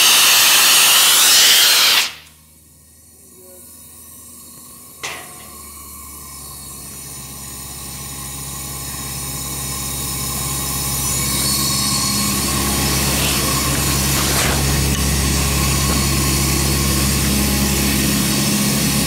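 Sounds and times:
air compressor engine running: 0.0s - 19.0s
air hissing: 11.0s - 16.5s.

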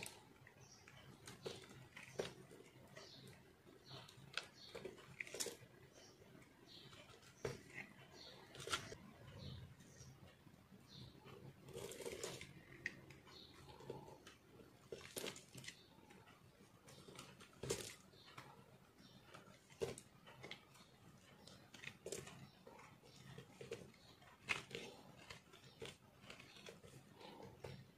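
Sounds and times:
knife scraping soap: 0.0s - 9.4s, 10.9s - 27.9s.

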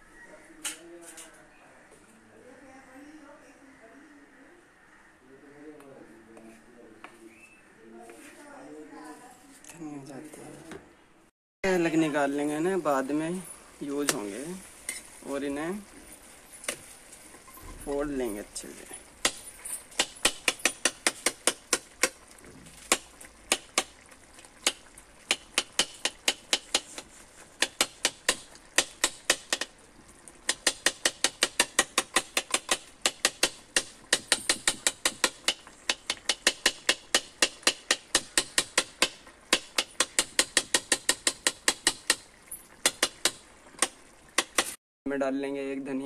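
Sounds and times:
spoon knocking on metal pan: 30.5s - 43.4s.

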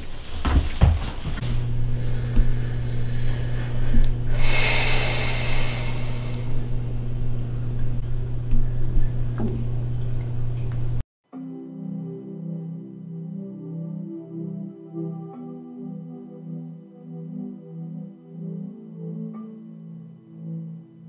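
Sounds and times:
low electrical hum: 1.0s - 11.0s
breathy hiss: 1.9s - 6.8s.

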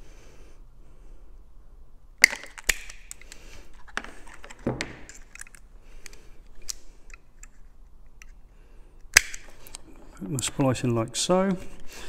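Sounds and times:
side cutters snapping through cable: 2.2s - 3.4s, 9.1s - 9.8s.

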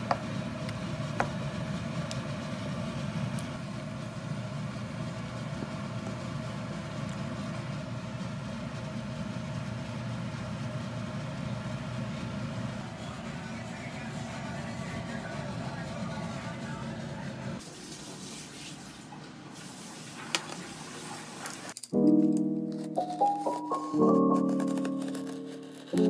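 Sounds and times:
steady low hum: 0.0s - 17.6s.

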